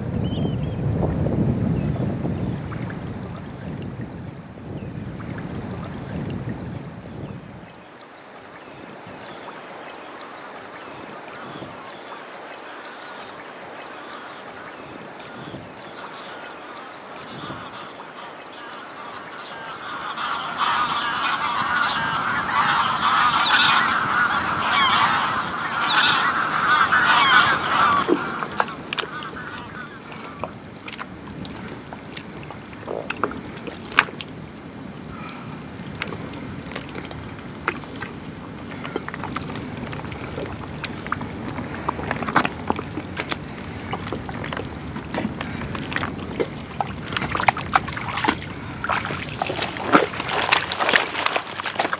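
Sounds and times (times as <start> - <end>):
water sloshing: 8.1 - 51.9
geese honking: 14.0 - 51.9
soft mud squelching: 25.7 - 51.9.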